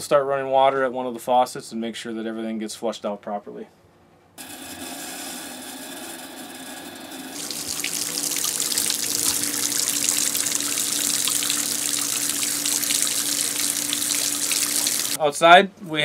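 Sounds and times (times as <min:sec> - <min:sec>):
low hum of water system: 0:07.4 - 0:15.2
water splashing into sink: 0:07.4 - 0:15.2.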